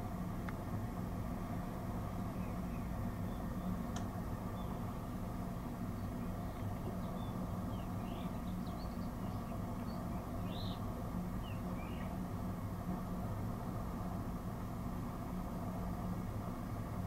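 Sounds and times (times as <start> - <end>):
steady low hum: 0.0 - 17.0
small birds chirping: 2.2 - 12.2.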